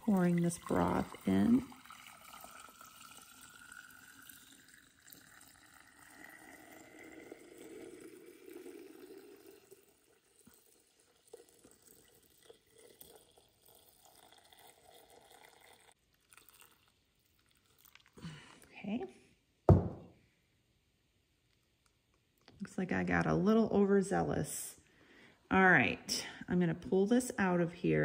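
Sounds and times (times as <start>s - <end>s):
liquid trickling into jar: 0.0s - 18.4s.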